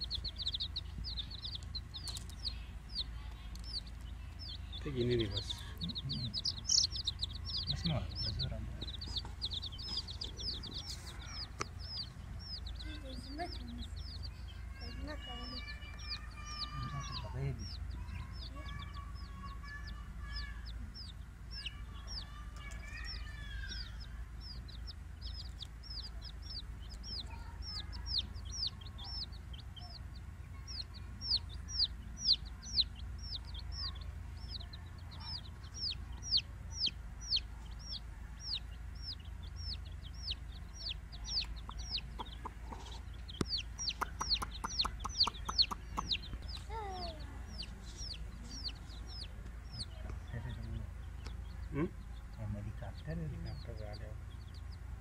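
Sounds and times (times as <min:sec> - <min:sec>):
baby chicks peeping: 0:00.0 - 0:55.0
sharp ticks: 0:41.3 - 0:42.7, 0:43.4 - 0:46.7.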